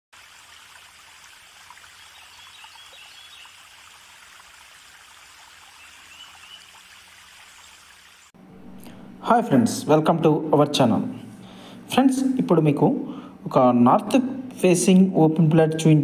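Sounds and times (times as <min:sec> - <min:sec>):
flowing water rushing: 0:00.1 - 0:08.4.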